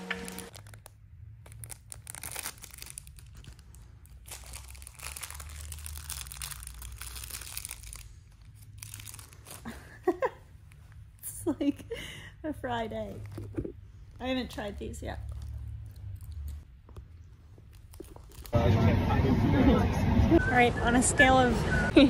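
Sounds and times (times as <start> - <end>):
plastic snack packet crinkling: 0.1 - 9.8, 15.3 - 18.6.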